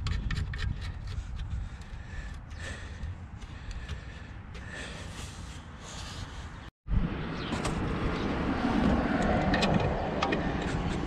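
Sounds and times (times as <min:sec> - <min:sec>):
person breathing close to microphone: 0:01.5 - 0:06.7.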